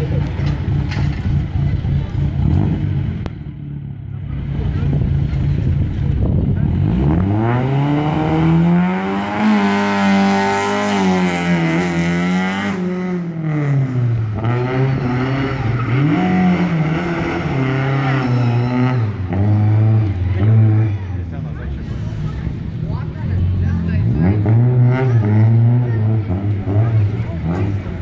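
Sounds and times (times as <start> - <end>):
rally car engine revving: 0.0 - 28.0.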